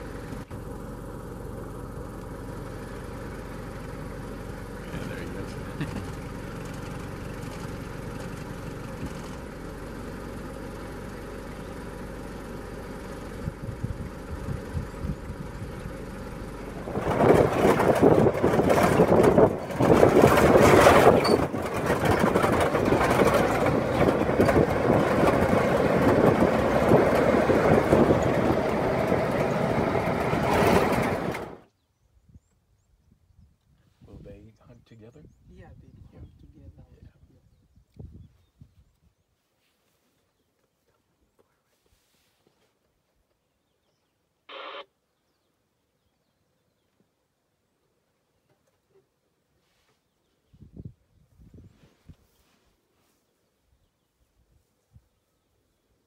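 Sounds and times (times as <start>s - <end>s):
quiet steady rumble: 0.0s - 31.7s, 32.3s - 45.2s
vehicle driving on dirt track: 0.0s - 31.7s.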